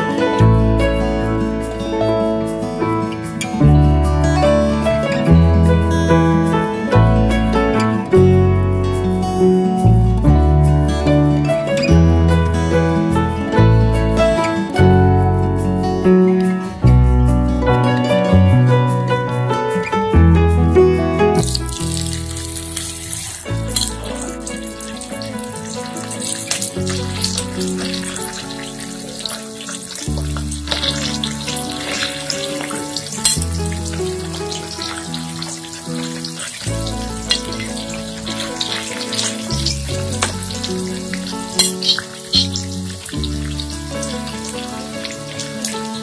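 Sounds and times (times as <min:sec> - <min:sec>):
chicken sizzling in a frying pan: 0:21.4 - 0:46.0.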